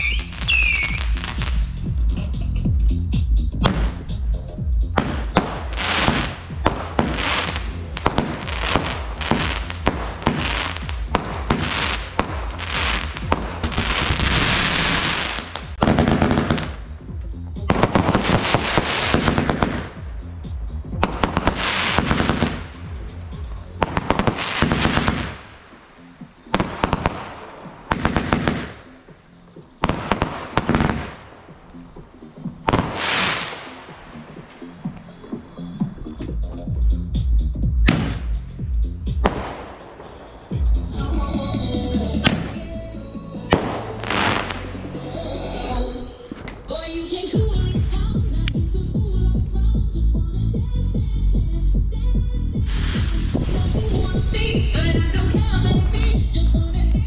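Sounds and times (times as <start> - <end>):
fireworks bangs and crackling: 0.0 - 1.8, 3.6 - 4.1, 5.0 - 16.9, 17.6 - 29.2, 29.8 - 31.8, 32.4 - 35.0, 37.7 - 42.9, 43.5 - 44.8, 52.6 - 57.0
background music: 0.0 - 57.0
firework hiss: 5.4 - 16.7, 17.9 - 20.0, 21.2 - 22.8, 23.8 - 25.5, 32.6 - 35.3, 52.6 - 54.5.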